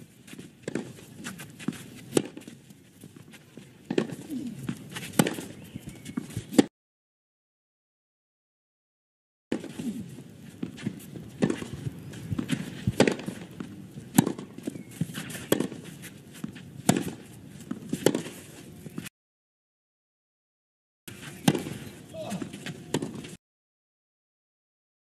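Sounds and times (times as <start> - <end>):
tennis ball struck by racquets: 0.3 - 6.7, 9.5 - 19.1, 21.1 - 23.4.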